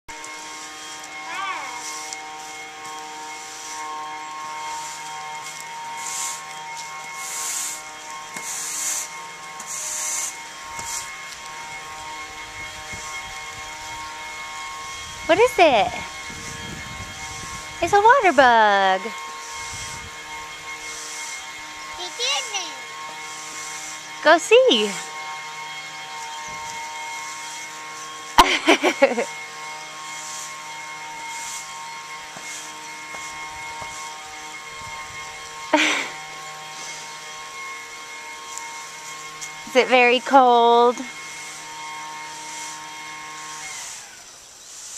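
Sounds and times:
steady multi-tone hum: 0:00.1 - 0:44.9
sprinkler water spray hissing: 0:00.2 - 0:16.5, 0:17.2 - 0:44.9
child squealing: 0:01.2 - 0:01.8.

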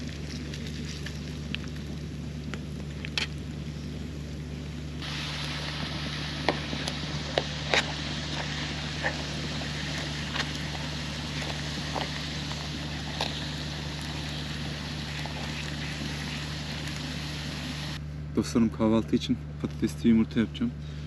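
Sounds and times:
low generator hum: 0:00.0 - 0:21.0
potato slices sizzling in oil: 0:05.0 - 0:18.0.

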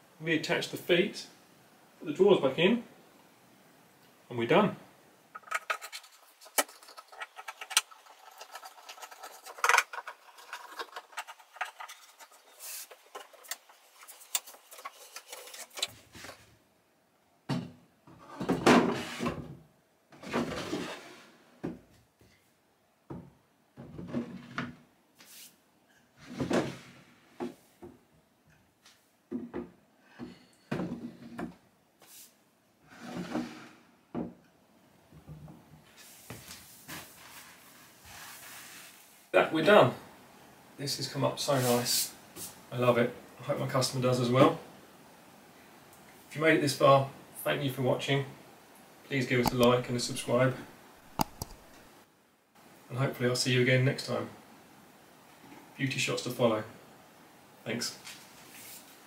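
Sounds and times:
scratchy rubbing of wood: 0:05.4 - 0:16.4
wooden drawers sliding shut: 0:20.2 - 0:21.3, 0:26.2 - 0:27.0, 0:32.9 - 0:33.8.

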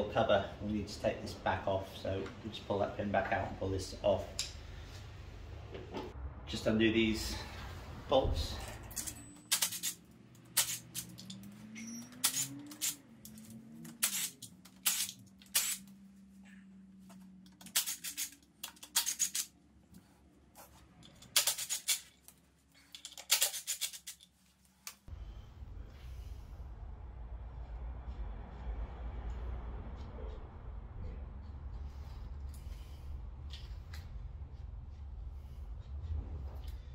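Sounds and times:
metal tools clinking: 0:08.6 - 0:15.8, 0:20.9 - 0:24.3
socket ratchet clicking: 0:09.5 - 0:15.9, 0:17.5 - 0:19.5.

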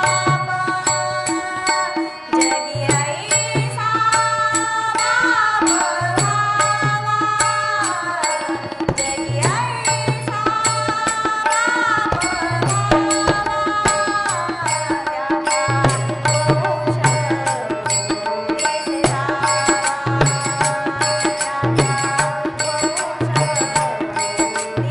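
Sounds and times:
harmonium: 0:00.0 - 0:24.9
small hand cymbals struck: 0:00.0 - 0:24.9
women singing devotional song: 0:00.0 - 0:24.9.

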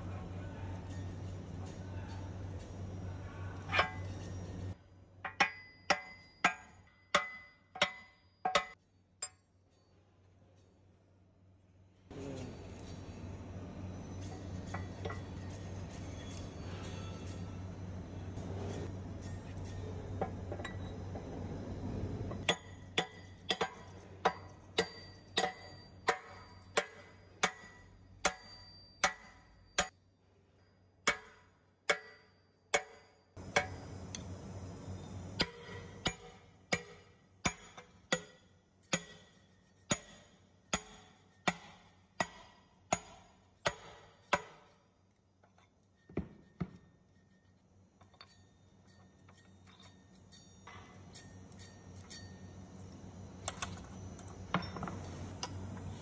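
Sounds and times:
low hum: 0:12.1 - 0:22.9, 0:33.4 - 0:36.1.

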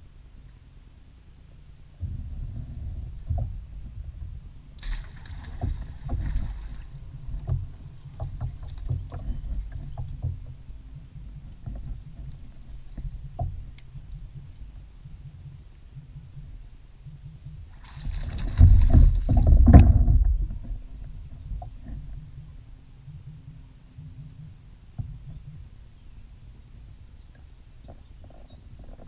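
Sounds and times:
low rumble: 0:00.0 - 0:27.6
bow and reel knocking on kayak: 0:05.4 - 0:25.7.

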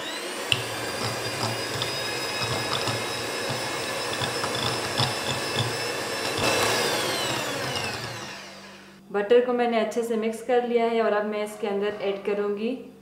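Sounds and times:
electric hand mixer whine: 0:00.0 - 0:09.0.

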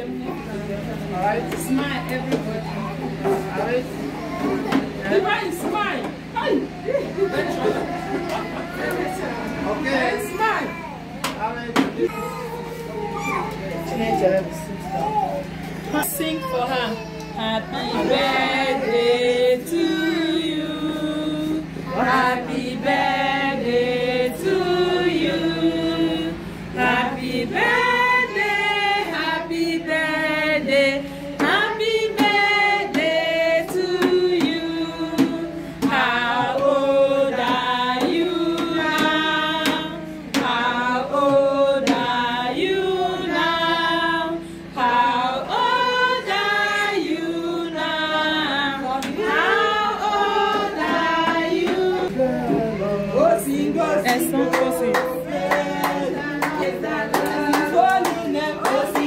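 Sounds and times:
women and children singing: 0:00.0 - 0:03.8, 0:17.4 - 0:59.0
hand clapping: 0:54.0 - 0:59.0.

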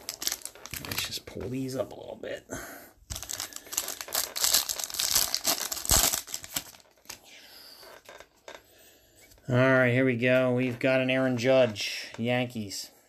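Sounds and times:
foil wrapper tearing and crinkling: 0:00.0 - 0:01.2, 0:03.1 - 0:07.2.

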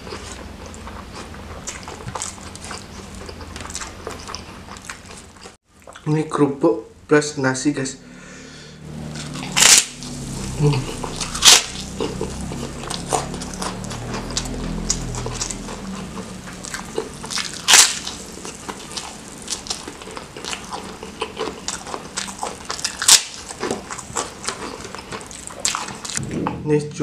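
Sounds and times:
wet chewing: 0:00.0 - 0:06.0, 0:09.0 - 0:26.2
crunching bites into cracker: 0:09.6 - 0:10.2, 0:16.8 - 0:26.2.

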